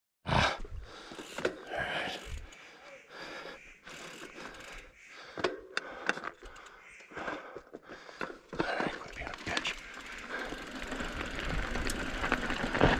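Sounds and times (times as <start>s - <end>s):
person breathing hard: 0.3s - 9.0s, 9.8s - 11.3s
sharp clicks from bike: 1.1s - 2.7s, 3.9s - 12.9s.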